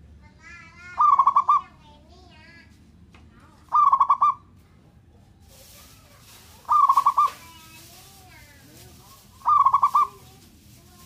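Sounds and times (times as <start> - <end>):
dove cooing: 3.7 - 4.4, 6.6 - 7.4, 9.1 - 10.3.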